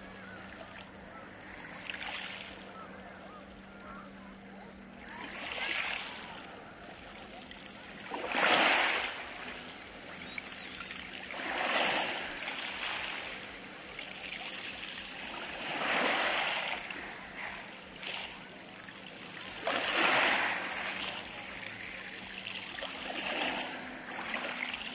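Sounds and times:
waves washing over pebbles: 0:05.1 - 0:10.3, 0:11.0 - 0:24.9.

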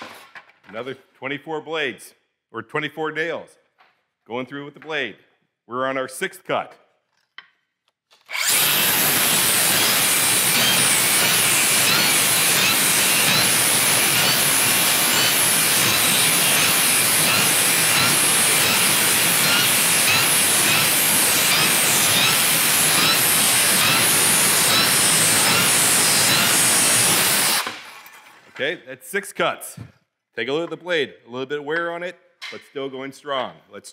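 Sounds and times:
circular saw cutting board with nails: 0:07.4 - 0:28.5.

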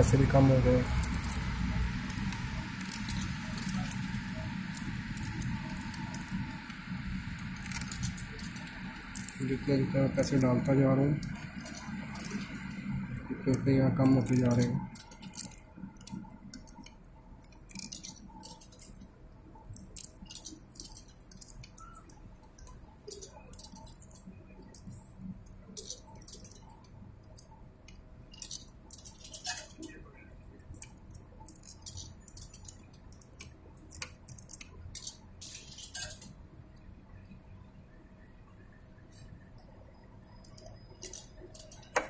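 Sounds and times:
coins dropping into a slot: 0:17.7 - 0:19.0, 0:19.8 - 0:22.0, 0:22.6 - 0:25.0, 0:25.8 - 0:26.9, 0:28.3 - 0:29.9, 0:30.8 - 0:36.3, 0:40.4 - 0:42.0.

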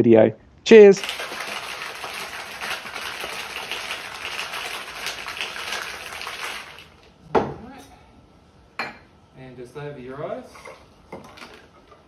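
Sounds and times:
ice rattling in cocktail shaker: 0:01.0 - 0:07.1, 0:11.2 - 0:11.8.

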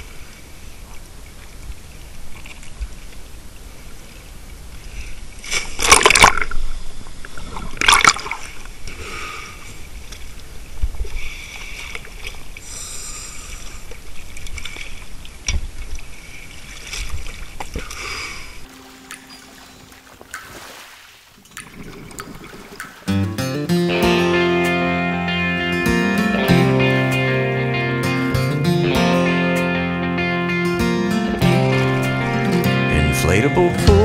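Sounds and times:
sea water sloshing and lapping: 0:00.0 - 0:23.1
loud splashes: 0:18.6 - 0:23.1.

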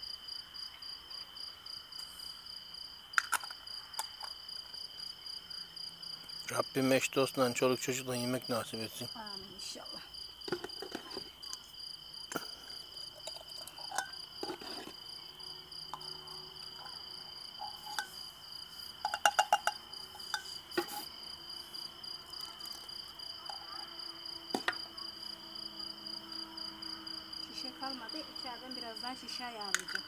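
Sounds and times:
crickets chirring: 0:00.0 - 0:30.0
metal ladle clinking on glass jars: 0:13.2 - 0:14.6, 0:19.0 - 0:21.0.

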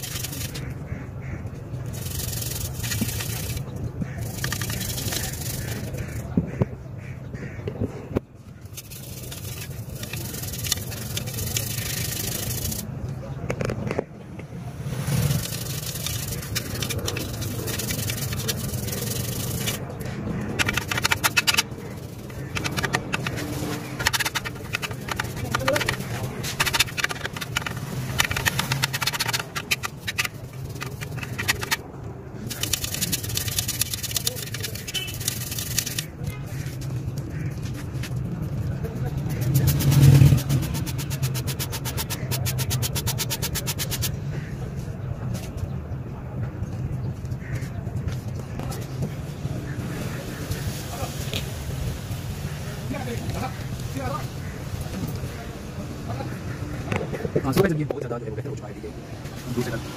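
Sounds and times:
toothbrush scrubbing metal pipe: 0:00.0 - 0:00.7, 0:01.8 - 0:06.2, 0:08.7 - 0:12.8, 0:15.2 - 0:31.8, 0:32.4 - 0:44.1
sharp clicks: 0:20.4 - 0:31.8.

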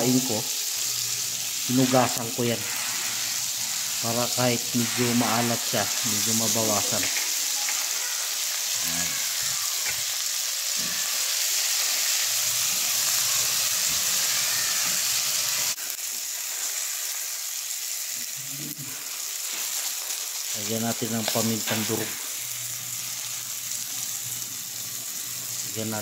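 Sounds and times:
fish sizzling in oil: 0:00.0 - 0:26.0.

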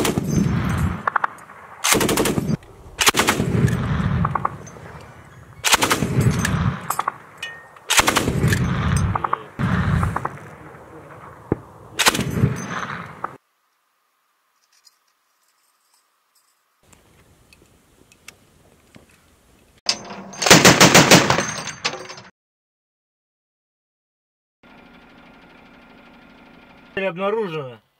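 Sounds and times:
heavy machine gun firing: 0:00.0 - 0:04.6, 0:05.6 - 0:06.9, 0:07.9 - 0:10.4, 0:20.4 - 0:21.5.

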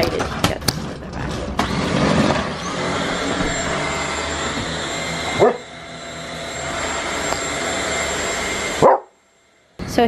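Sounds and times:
vacuum cleaner whining: 0:01.2 - 0:10.0
dog barking: 0:05.4 - 0:05.7, 0:08.8 - 0:09.2.

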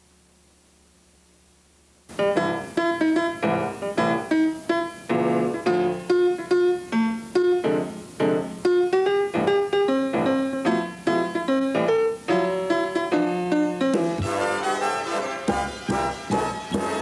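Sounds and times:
piano music: 0:02.1 - 0:17.0.

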